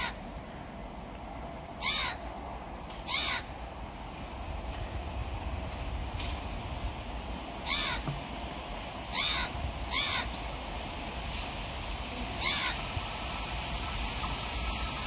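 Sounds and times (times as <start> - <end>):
crow cawing: 1.8 - 2.2, 3.1 - 3.5, 7.6 - 8.1, 9.1 - 10.4, 12.4 - 12.8.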